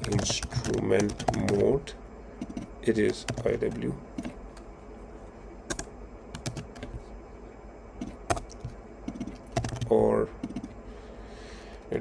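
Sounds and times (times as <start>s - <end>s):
keyboard keystrokes clicking: 0.0s - 1.6s, 5.7s - 7.0s, 8.0s - 10.7s.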